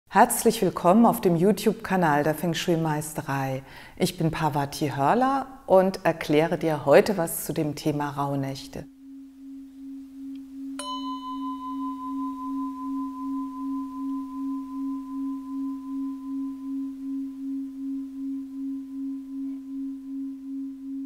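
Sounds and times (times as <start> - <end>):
low pulsing singing bowl tone: 8.8 - 21.0
bell-like singing bowl strike: 10.7 - 19.8.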